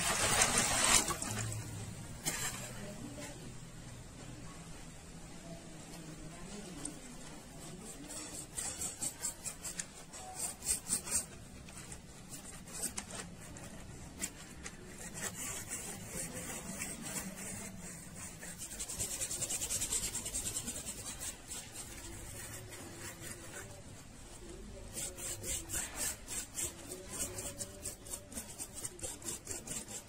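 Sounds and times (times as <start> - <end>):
cotton swab scrubbing metal: 6.5 - 30.0.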